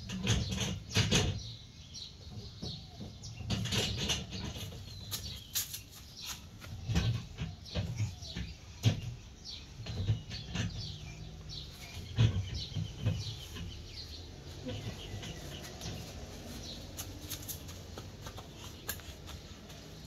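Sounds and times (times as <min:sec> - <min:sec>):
thumps and knocks of rotating cylinders: 0:11.9 - 0:20.0.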